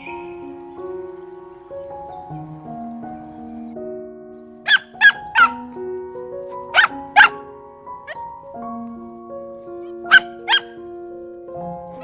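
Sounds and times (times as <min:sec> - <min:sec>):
background music with held notes: 0:00.0 - 0:12.0
puppies yipping: 0:04.7 - 0:05.9, 0:06.5 - 0:07.4, 0:08.0 - 0:08.4, 0:09.7 - 0:11.0.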